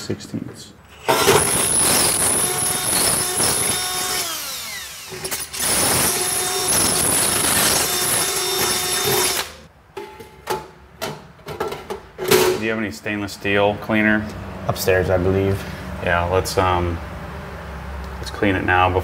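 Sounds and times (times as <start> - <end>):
cordless drill boring through metal: 0.9 - 9.6.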